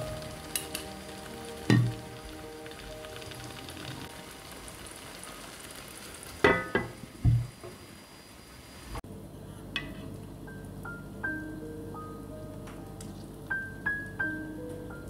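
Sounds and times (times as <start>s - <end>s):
sauce sizzling in a pan: 0.0s - 9.0s
glass lid clanking on pan: 6.4s - 7.4s.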